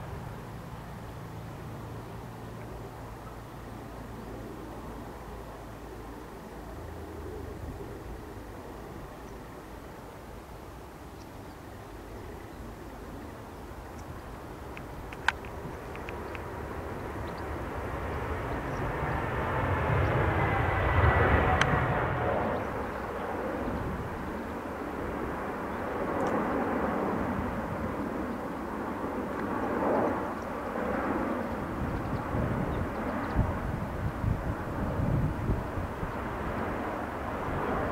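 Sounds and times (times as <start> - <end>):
jet engine roar: 11.8 - 37.9.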